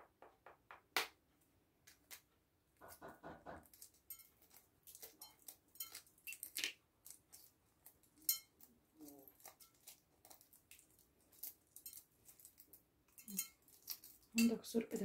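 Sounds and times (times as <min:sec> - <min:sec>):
eggshell crackling: 0:03.6 - 0:15.0.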